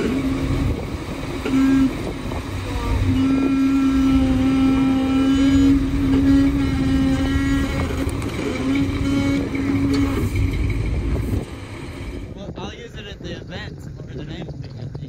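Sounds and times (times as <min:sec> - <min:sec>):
buggy engine at high revs: 0:00.0 - 0:11.5.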